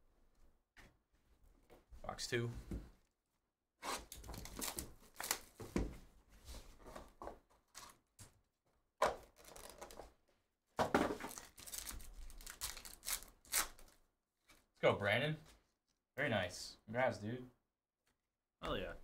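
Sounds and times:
paper and foil packaging crinkling: 9.4s - 10.0s, 11.2s - 14.0s.

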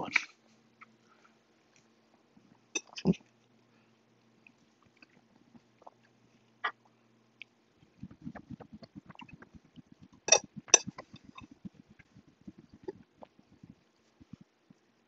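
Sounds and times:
chewing food: 4.2s - 14.8s
wet mouth noises: 4.4s - 14.9s.

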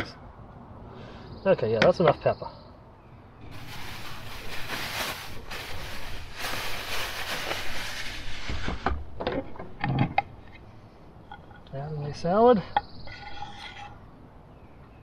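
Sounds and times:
plastic bag rustling: 3.4s - 8.8s.

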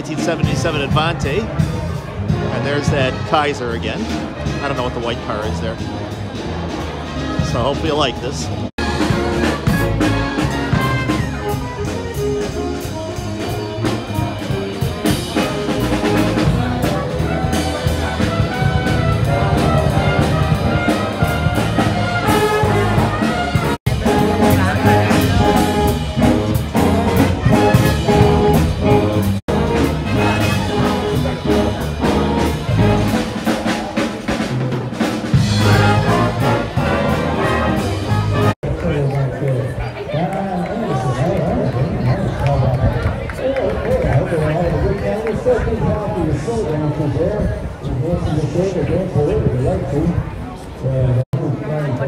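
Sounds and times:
music: 0.0s - 38.8s.

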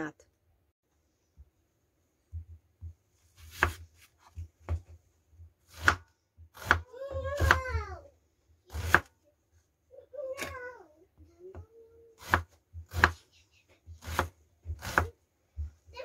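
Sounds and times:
knife chopping on wooden board: 2.3s - 4.8s, 5.7s - 7.8s, 8.7s - 9.1s, 12.2s - 13.2s, 14.0s - 15.2s.

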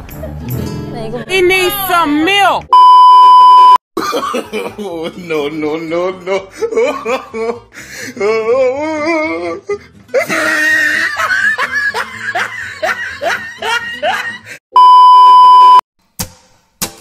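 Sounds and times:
music: 0.0s - 2.6s, 5.0s - 14.6s, 16.0s - 17.0s
loud steady beep tone: 2.8s - 3.8s, 14.8s - 15.8s
laughter: 4.0s - 7.6s, 10.1s - 14.6s.

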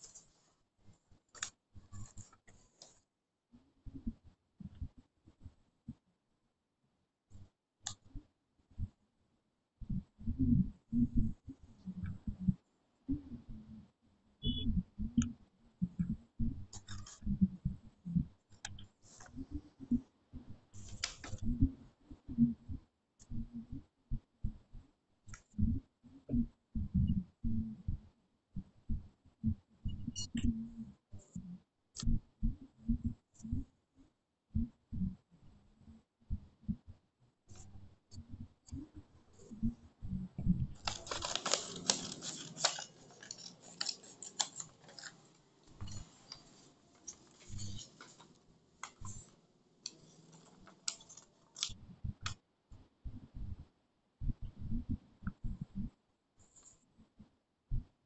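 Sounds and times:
paper rustling: 40.8s - 51.7s
soft low thumps: 54.2s - 56.0s.

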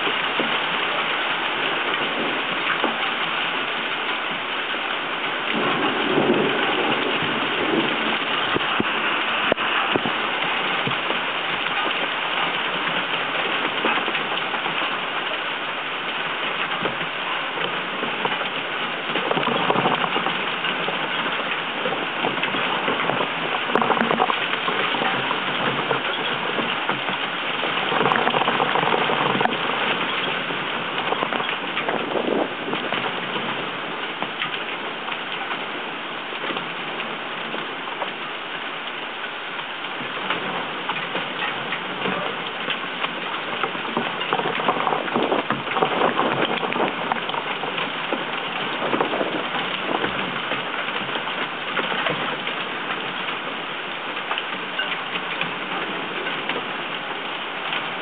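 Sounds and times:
heavy rain and wind on camera: 0.0s - 58.0s.

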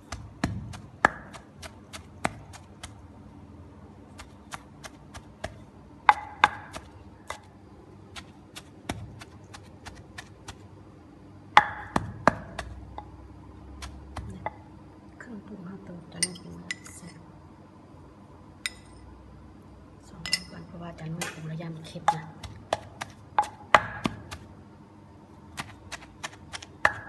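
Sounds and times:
pestle pounding in mortar: 0.0s - 3.0s, 4.2s - 7.5s, 8.2s - 10.6s, 11.6s - 13.1s, 13.8s - 14.6s, 22.0s - 24.4s, 25.6s - 27.0s.

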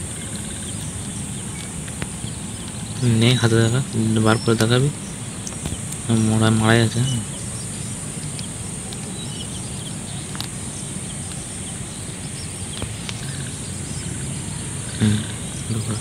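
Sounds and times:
insect chirring: 0.0s - 16.0s
low background rumble: 0.0s - 16.0s
faint clicks: 10.2s - 11.5s, 12.4s - 14.2s.

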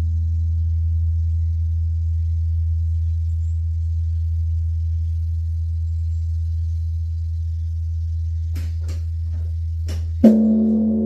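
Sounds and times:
large temple bell ringing: 10.3s - 11.0s.

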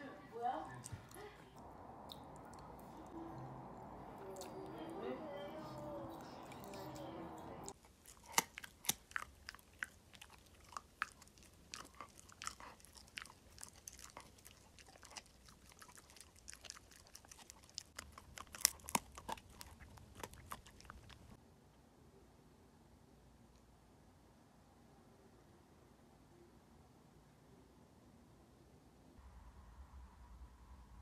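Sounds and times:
dog gnawing chew bone: 5.6s - 21.4s.

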